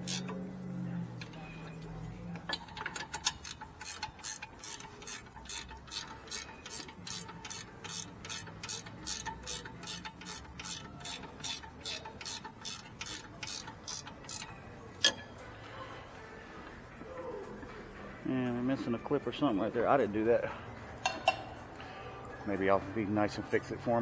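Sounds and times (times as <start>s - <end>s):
ratchet wrench clicking: 0.0s - 0.4s, 2.8s - 15.2s.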